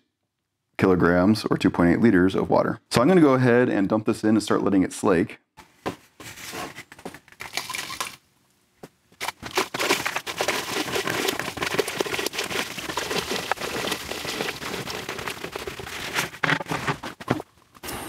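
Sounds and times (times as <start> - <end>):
powder pouring into water: 7.4 - 8.2, 9.2 - 16.9.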